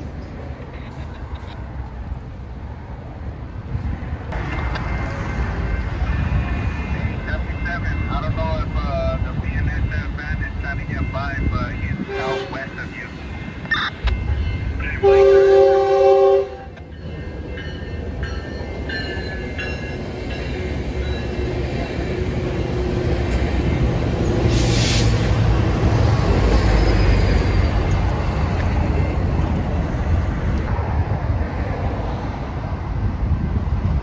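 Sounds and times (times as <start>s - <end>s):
train rumble and wheel noise: 0.0s - 34.0s
train horn blast: 12.0s - 12.7s, 15.0s - 16.8s.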